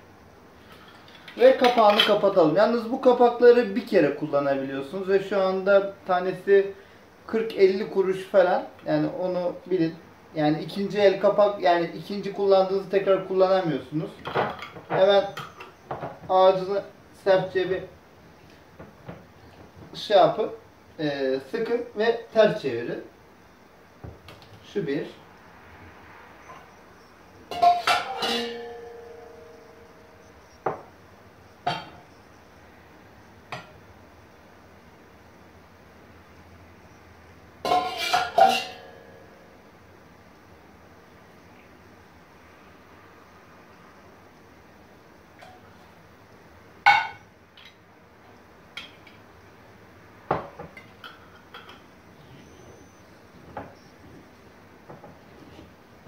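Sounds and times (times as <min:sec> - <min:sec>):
metal clinking on pot or jar: 0:27.5 - 0:29.6, 0:37.7 - 0:39.3.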